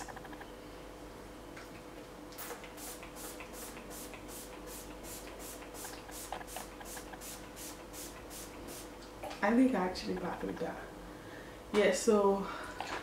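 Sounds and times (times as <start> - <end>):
spray bottle hissing puffs: 2.4 - 8.9.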